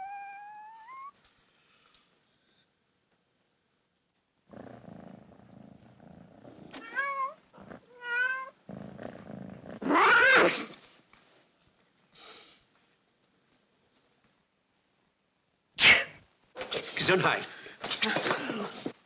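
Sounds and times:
cat meowing: 0.0s - 1.2s, 6.8s - 8.6s, 9.8s - 10.6s
cat purring: 4.5s - 10.7s.

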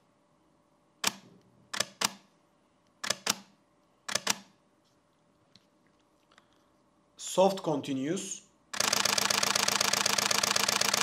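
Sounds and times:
camera shutter clicks: 8.8s - 11.0s.

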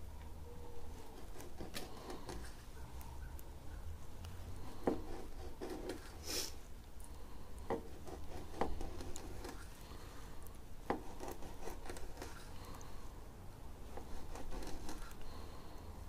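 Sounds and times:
knife scraping: 1.0s - 2.6s, 7.7s - 9.7s, 10.9s - 12.6s, 13.9s - 15.2s.

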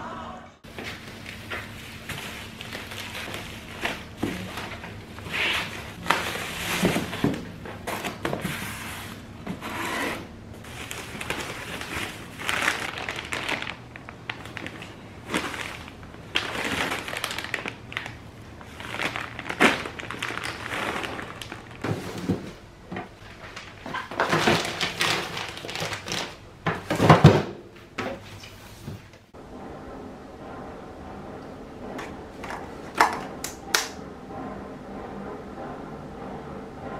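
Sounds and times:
foil and plastic crinkling: 0.7s - 8.6s, 10.6s - 22.6s, 23.3s - 26.4s.

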